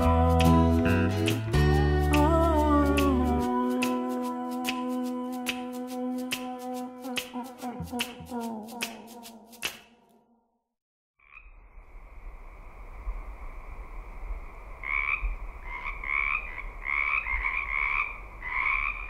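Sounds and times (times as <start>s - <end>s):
frogs rapidly pulsing calls: 14.8s - 19.0s
frogs trilling drone: 14.8s - 19.0s.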